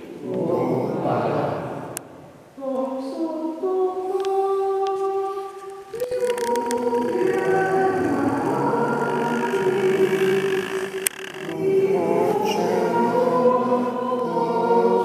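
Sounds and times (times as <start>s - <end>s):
voices singing: 0.0s - 15.0s
held organ-like chords: 5.9s - 13.8s.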